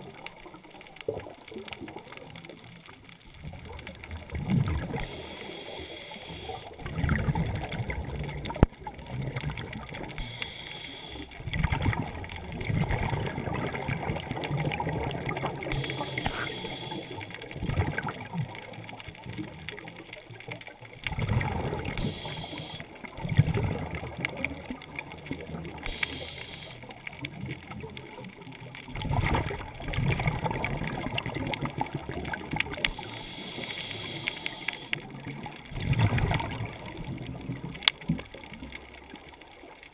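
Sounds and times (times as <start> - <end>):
exhaled bubbles rumbling: 0.0 - 39.9
regulator inhale hiss: 4.9 - 6.8, 10.2 - 11.4, 15.7 - 17.4, 21.8 - 23.0, 25.8 - 26.9, 32.8 - 35.1.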